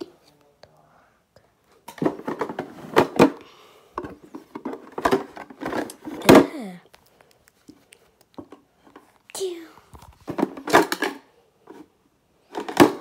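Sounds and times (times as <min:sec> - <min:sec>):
child making vocal sounds: 0:06.2 - 0:07.0, 0:09.3 - 0:09.9.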